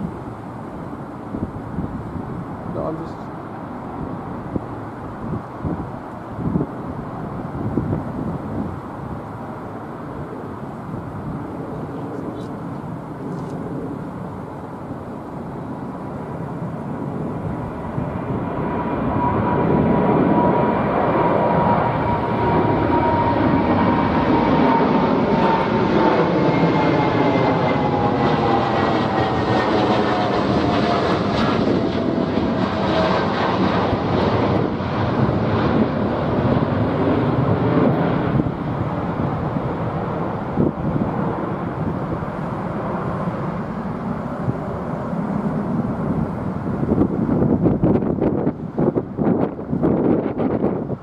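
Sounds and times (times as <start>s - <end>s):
jet engines roaring: 0.0s - 51.0s.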